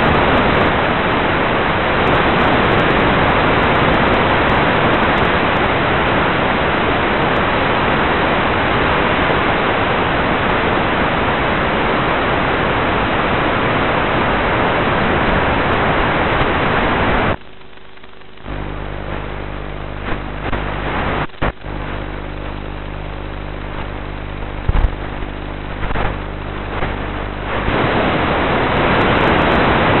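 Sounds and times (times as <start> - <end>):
radio static hiss: 0.0 - 30.0
steady electrical hum: 0.0 - 30.0
clicks: 24.6 - 26.9.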